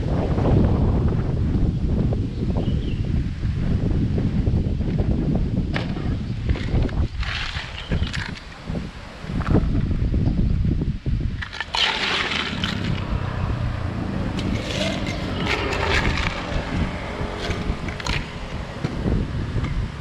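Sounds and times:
low rumble: 9.3s - 20.0s
ice cubes clinking against glass: 14.4s - 16.6s.

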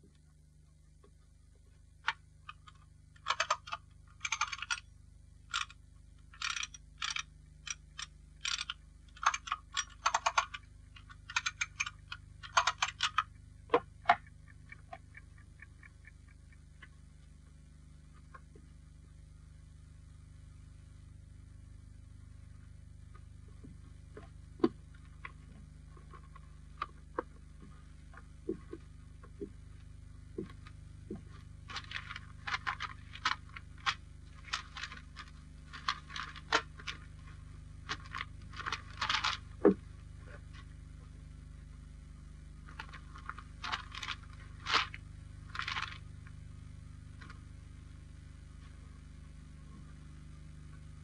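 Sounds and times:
old film soundtrack hum: 0.0s - 51.0s
sharp clicks: 2.1s - 4.9s, 5.5s - 17.0s
scratchy crackles and scrapes: 23.2s - 40.7s, 42.6s - 46.4s.

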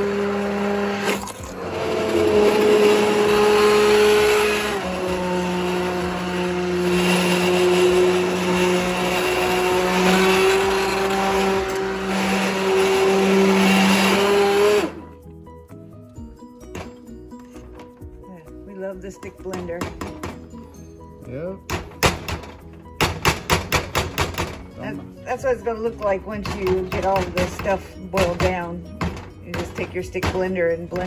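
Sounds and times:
stick blender motor: 0.0s - 15.2s.

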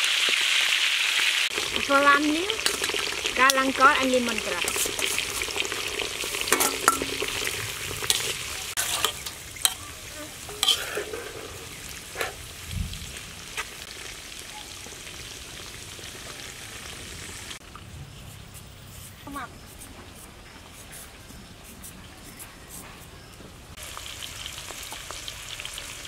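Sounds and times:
oil sizzling in a wok: 0.0s - 17.6s, 23.7s - 26.0s.

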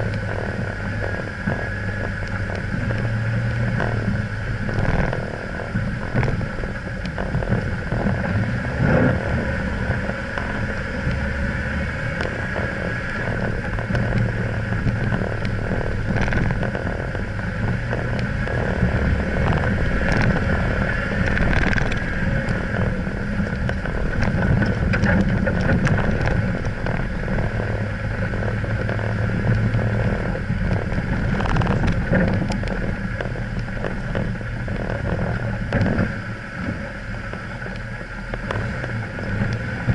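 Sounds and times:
vehicle engine running: 0.0s - 39.9s
stones knocking under tyres: 12.2s - 36.2s.

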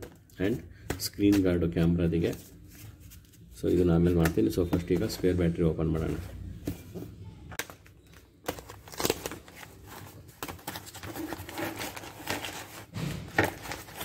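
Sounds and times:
packaging rustling: 7.5s - 14.0s.

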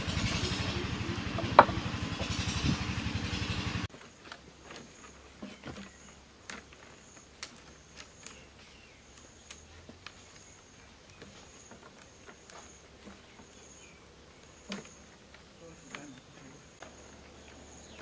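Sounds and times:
cane sticks and wire clicking: 5.7s - 13.6s.

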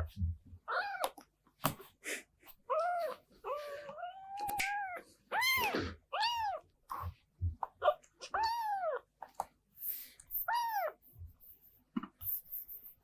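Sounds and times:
kitten mewing: 2.7s - 9.0s.

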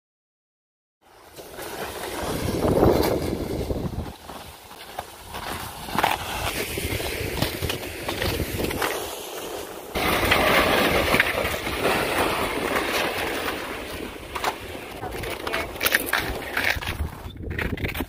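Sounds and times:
plastic sled scraping over ice: 1.0s - 18.0s
footsteps crunching on snow: 1.2s - 10.1s
wind noise on microphone: 2.1s - 4.5s, 5.2s - 9.1s, 15.0s - 18.0s.

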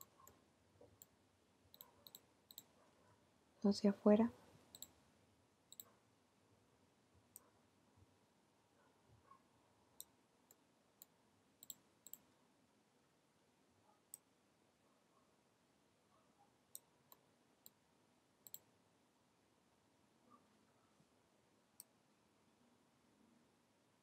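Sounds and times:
mouse and keyboard clicks: 0.0s - 1.1s, 1.7s - 2.7s, 4.7s - 5.0s, 10.0s - 12.2s, 18.4s - 18.7s.

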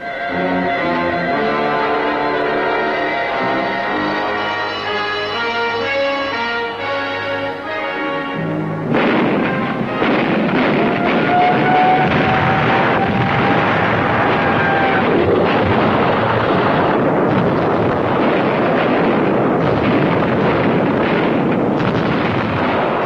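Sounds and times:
heavy guns firing: 8.9s - 23.0s.

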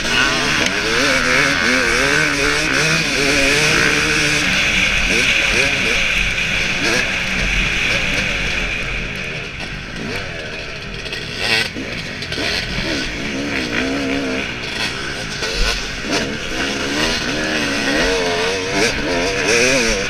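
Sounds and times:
dirt bike engine revving: 0.0s - 20.0s.

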